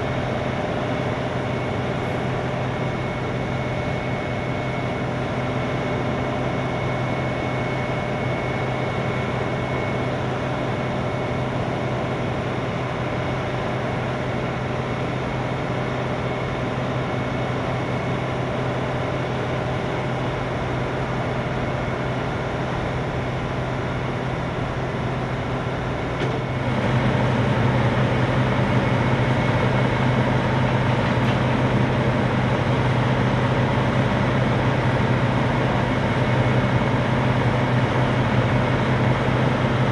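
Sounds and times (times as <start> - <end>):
heavy machinery engine humming: 21.7 - 39.9.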